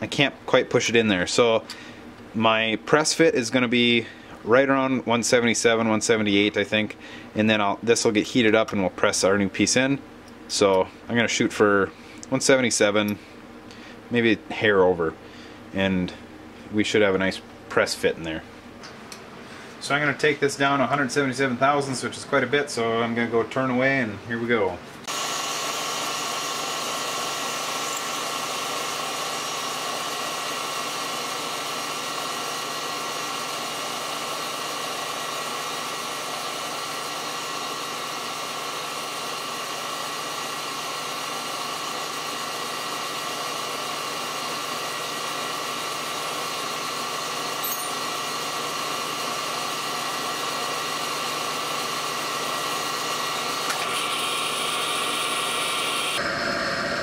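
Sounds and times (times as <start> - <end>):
mechanical hum with faint whine: 0.0 - 57.0
metal lathe running: 25.1 - 56.5.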